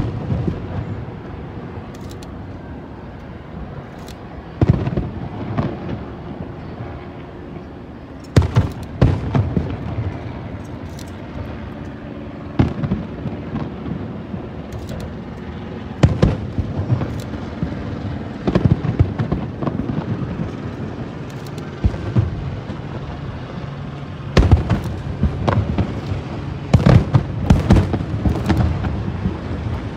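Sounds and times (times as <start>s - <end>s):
steady low hum: 0.0s - 29.9s
distant firework booms: 24.4s - 29.6s.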